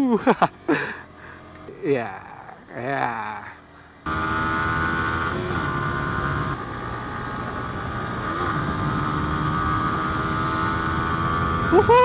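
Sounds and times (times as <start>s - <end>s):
motorcycle engine running hard: 4.0s - 12.0s.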